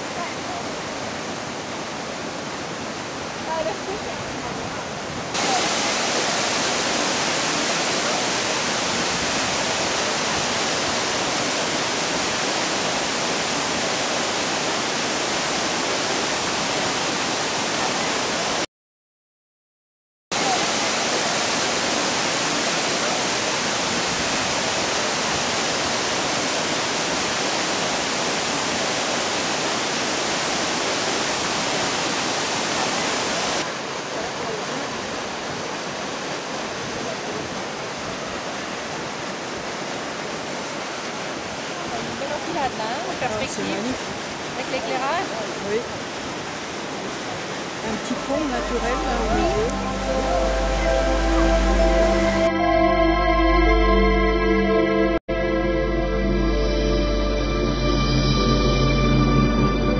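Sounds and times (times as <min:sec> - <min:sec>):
river water rushing over rocks: 0:00.0 - 0:18.6, 0:20.4 - 0:52.5.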